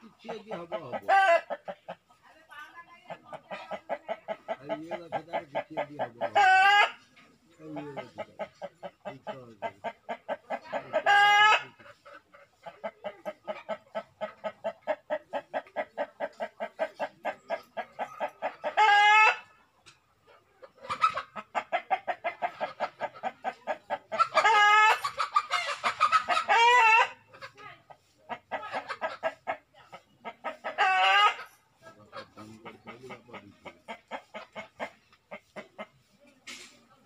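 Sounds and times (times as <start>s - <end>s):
chickens clucking: 0.0s - 37.0s
loud chicken calls: 17.7s - 19.5s, 20.8s - 27.4s, 30.2s - 31.6s.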